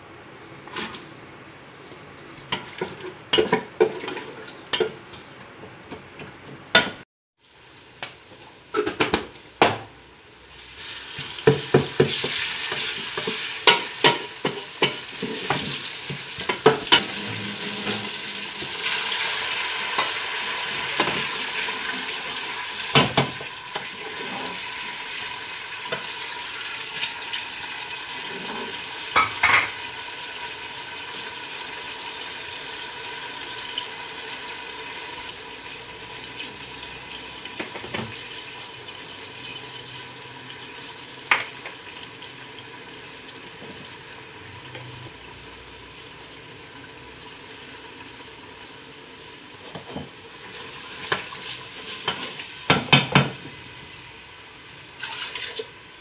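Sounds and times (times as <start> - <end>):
onions sizzling in hot oil: 7.4 - 56.0
ladle knocking and scraping pot: 11.4 - 18.8.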